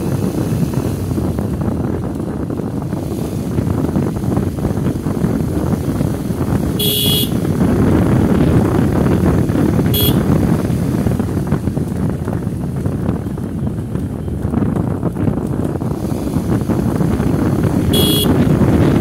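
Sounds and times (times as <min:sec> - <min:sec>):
steady rumble: 0:00.0 - 0:19.0
wind buffeting microphone: 0:00.0 - 0:19.0
short high-pitched toots: 0:18.0 - 0:18.3.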